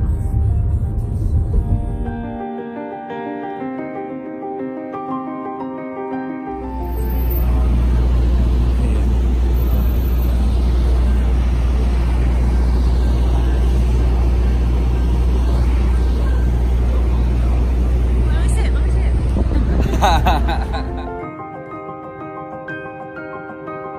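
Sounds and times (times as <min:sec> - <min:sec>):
road traffic rumble: 0:06.5 - 0:21.3.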